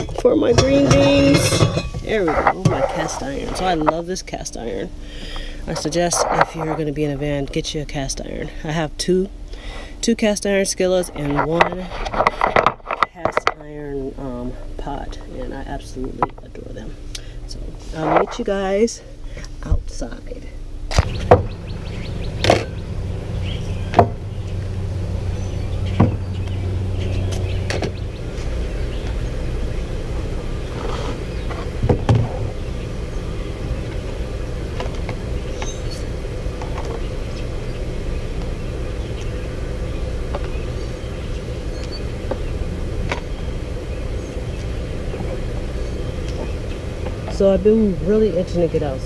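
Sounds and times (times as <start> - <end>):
steady low rumble: 0.0 - 49.0.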